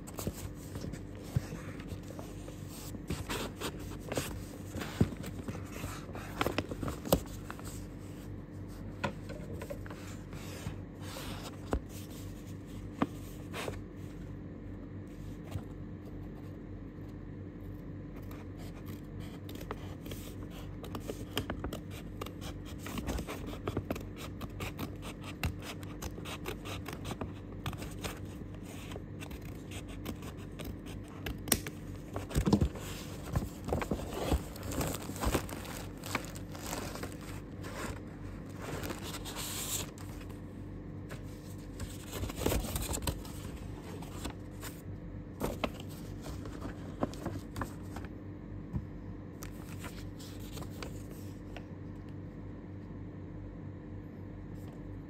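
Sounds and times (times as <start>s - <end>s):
paper and plastic rustling: 0.0s - 14.1s, 32.0s - 40.4s, 41.1s - 44.8s, 45.4s - 48.1s, 49.5s - 51.4s
paper crinkling and tearing: 21.0s - 40.3s.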